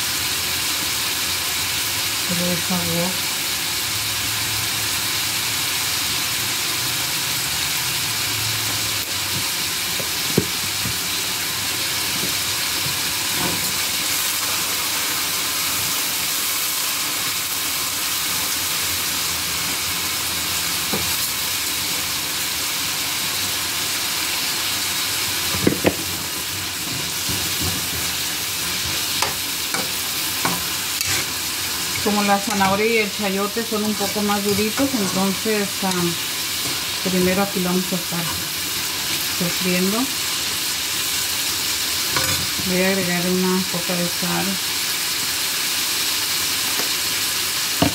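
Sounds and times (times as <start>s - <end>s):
vegetables sizzling in oil: 0.0s - 47.9s
spoon stirring in pan: 26.8s - 32.8s.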